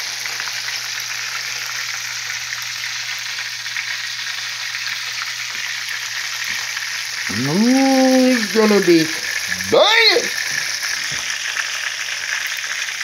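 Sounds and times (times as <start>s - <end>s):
chicken sizzling in oil: 0.0s - 13.0s.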